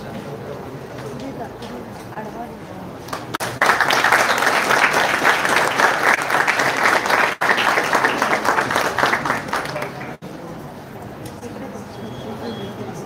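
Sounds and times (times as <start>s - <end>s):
audience applauding: 3.1s - 10.2s.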